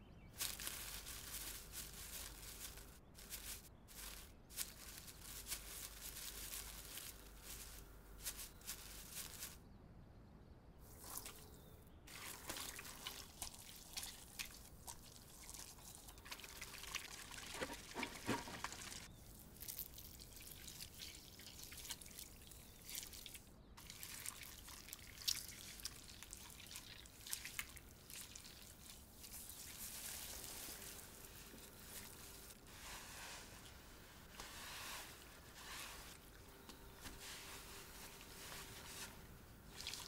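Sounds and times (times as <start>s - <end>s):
wet squelches: 10.8s - 40.0s
hands patting raw fish: 17.5s - 19.1s.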